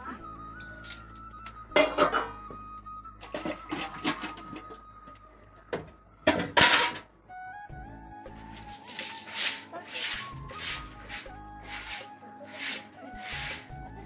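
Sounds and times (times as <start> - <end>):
background music: 0.0 - 14.0
steel dishes clattering: 1.8 - 2.4, 6.3 - 7.1
water splashing: 8.8 - 13.6.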